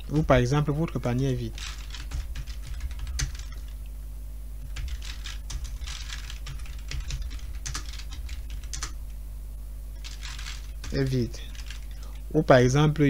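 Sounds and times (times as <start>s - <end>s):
computer keyboard typing: 1.5s - 3.8s, 4.6s - 9.0s, 10.0s - 13.0s.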